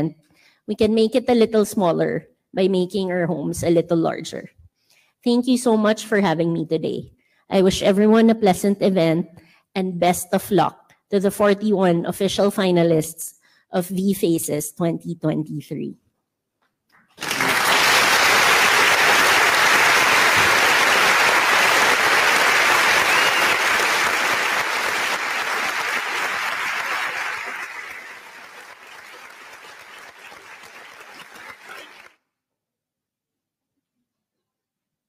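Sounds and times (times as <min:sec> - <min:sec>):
audience applauding: 0:17.2 - 0:32.2.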